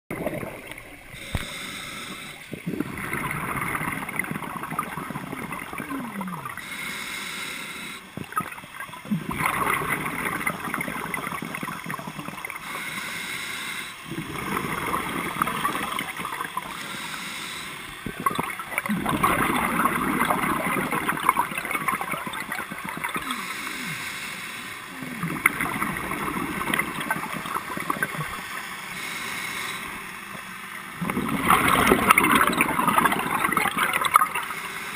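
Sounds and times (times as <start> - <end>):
exhaled bubbles gurgling underwater: 0.1 - 34.9
scuba regulator inhalation hiss: 1.1 - 2.6, 6.6 - 8.1, 12.6 - 14.1, 16.6 - 18.0, 23.2 - 25.0, 28.1 - 30.4, 34.4 - 34.9.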